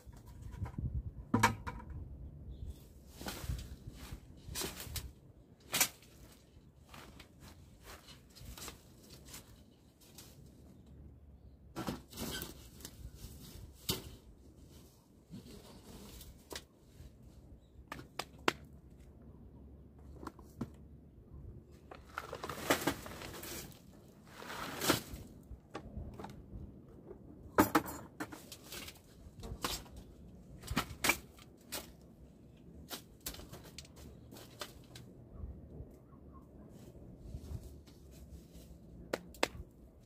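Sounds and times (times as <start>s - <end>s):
hands scraping and patting soil: 3.0s - 11.0s, 21.7s - 25.6s, 36.8s - 40.0s.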